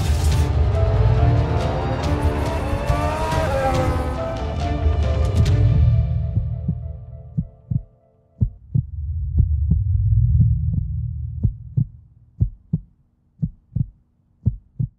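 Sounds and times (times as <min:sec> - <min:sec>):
low drone: 0:00.0 - 0:08.1, 0:08.8 - 0:12.0
heartbeat-like double thump: 0:06.2 - 0:14.9.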